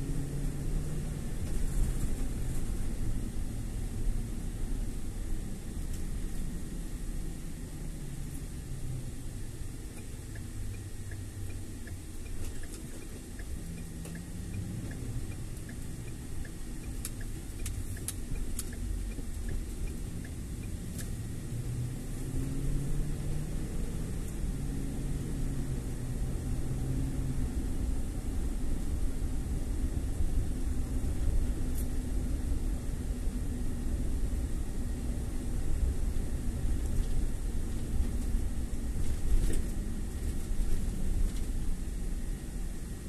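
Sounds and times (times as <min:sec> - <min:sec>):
car engine and road rumble: 0:00.0 - 0:43.0
faint regular ticking: 0:09.9 - 0:21.2.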